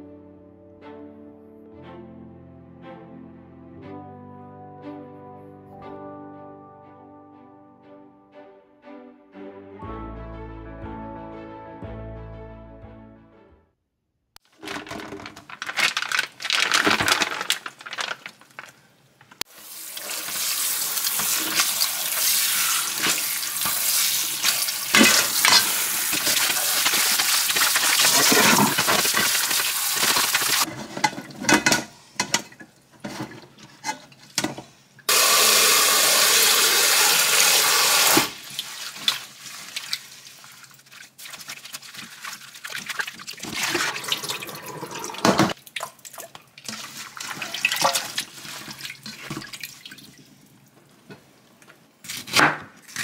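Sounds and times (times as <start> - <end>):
water running into metal sink: 19.6 - 30.7, 35.1 - 45.6.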